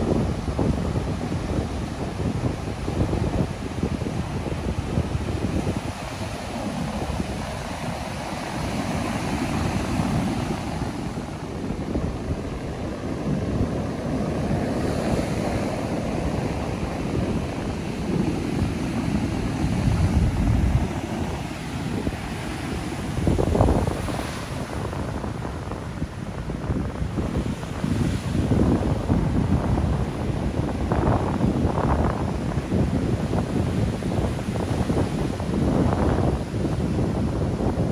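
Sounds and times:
ocean surf breaking: 0.0 - 37.9
wind buffeting microphone: 0.0 - 37.9.

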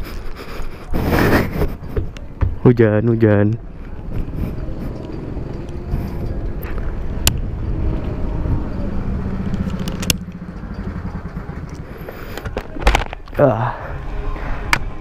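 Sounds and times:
go-kart engines droning: 3.6 - 15.0.

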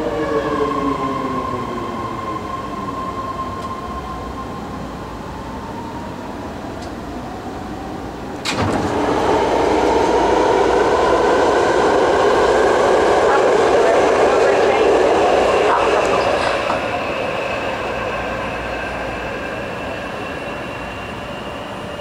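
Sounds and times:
train running noise: 0.0 - 22.0
train motor whine: 8.4 - 22.0.

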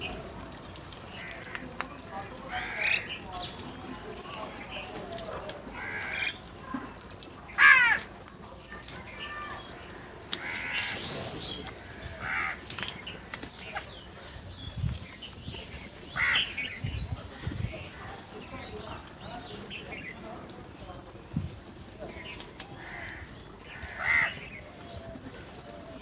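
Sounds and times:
crows cawing: 2.5 - 3.2, 5.7 - 6.4, 7.5 - 8.1, 9.9 - 11.0, 11.8 - 13.3, 16.1 - 16.7, 22.7 - 24.7.

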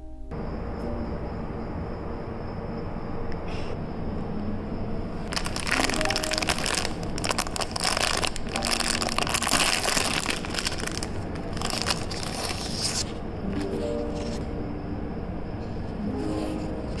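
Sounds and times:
plastic film crinkling: 5.2 - 14.5.

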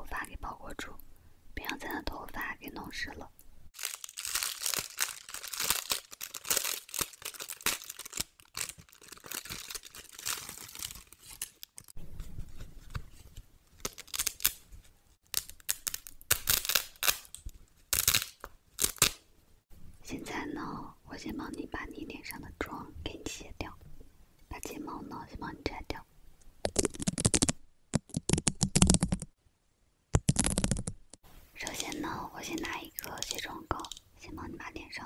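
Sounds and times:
plastic wrapping crinkling: 3.8 - 19.2, 26.6 - 29.3, 31.6 - 34.0.

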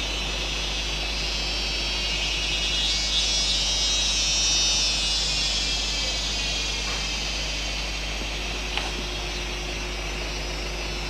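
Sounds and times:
insects buzzing in chorus: 0.0 - 11.0.

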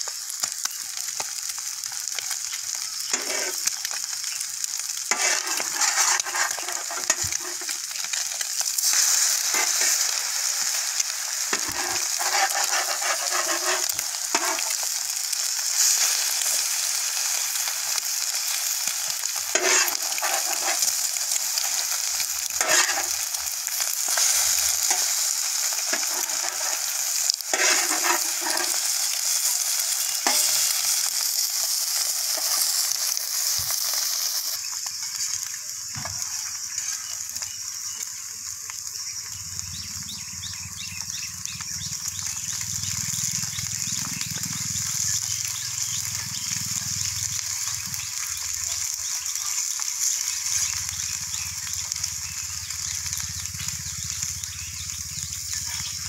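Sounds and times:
food sizzling in a frying pan: 0.0 - 56.0
utensil scraping a pan: 3.1 - 3.7, 5.1 - 7.8, 8.8 - 10.2, 11.4 - 14.9, 19.5 - 21.8, 22.4 - 31.1.

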